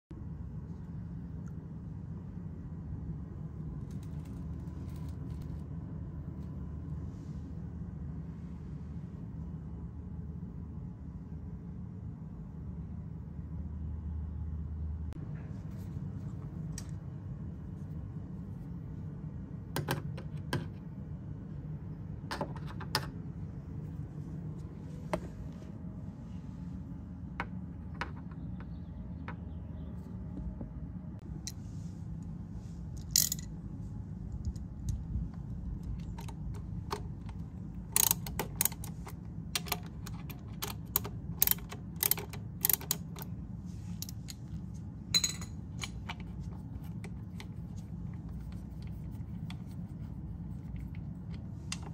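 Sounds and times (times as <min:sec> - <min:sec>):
steady low hum: 0:00.1 - 0:51.9
metallic clicks of hand tools: 0:37.9 - 0:43.3.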